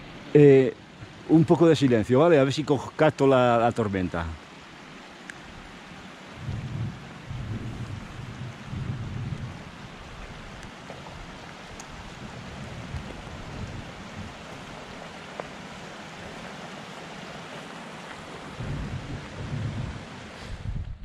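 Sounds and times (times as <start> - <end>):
wind and rain hissing: 0.0 - 21.0
faint ticks: 5.2 - 5.4, 10.2 - 12.0.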